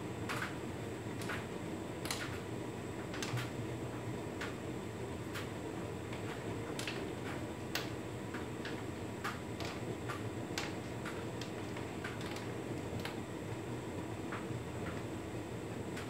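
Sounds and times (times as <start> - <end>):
tumble dryer humming: 0.0 - 16.0
light irregular clicks: 1.2 - 2.4.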